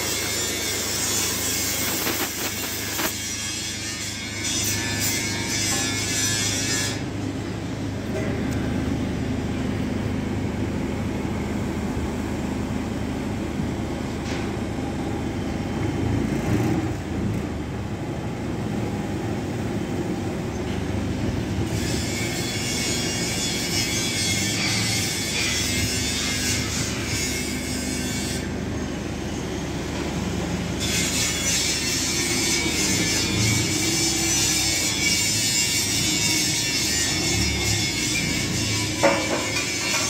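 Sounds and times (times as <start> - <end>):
welding machine humming: 0.0 - 7.6, 21.3 - 40.0
hissing noise: 1.6 - 3.2.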